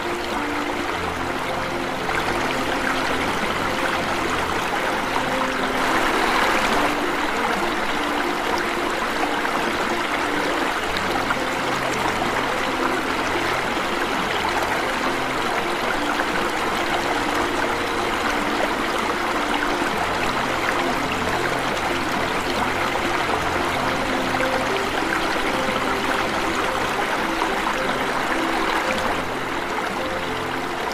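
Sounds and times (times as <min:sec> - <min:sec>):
water rushing over waterfall: 0:00.0 - 0:30.9.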